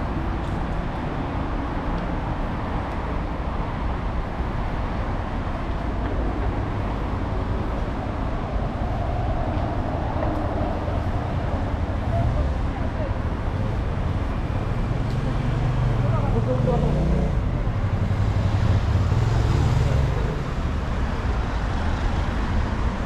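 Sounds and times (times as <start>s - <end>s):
passing vehicles rumbling: 0.0s - 23.0s.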